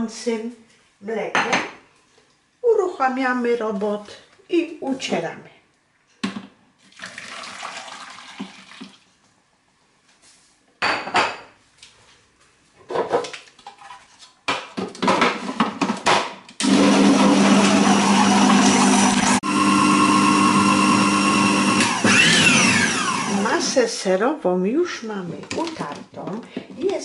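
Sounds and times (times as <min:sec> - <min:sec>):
milk pouring into a bowl: 0:06.9 - 0:09.1
food processor motor humming: 0:16.6 - 0:23.8.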